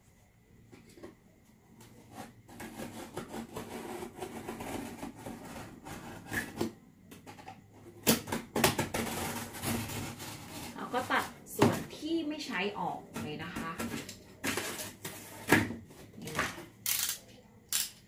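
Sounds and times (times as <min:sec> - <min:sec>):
knife sawing through cardboard: 0:02.1 - 0:06.4.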